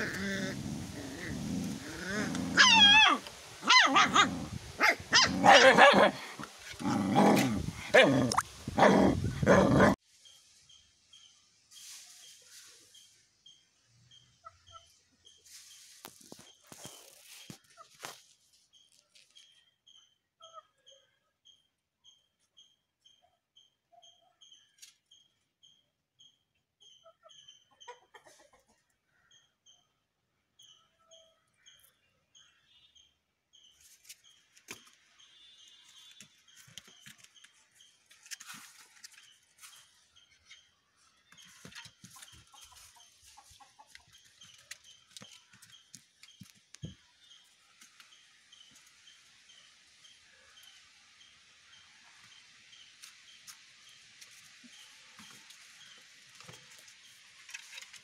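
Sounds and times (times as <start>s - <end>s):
bird chirping: 29.1s - 57.8s.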